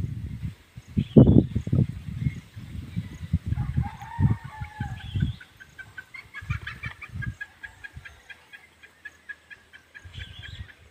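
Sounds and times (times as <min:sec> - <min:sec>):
rooster crowing: 0:03.6 - 0:05.3.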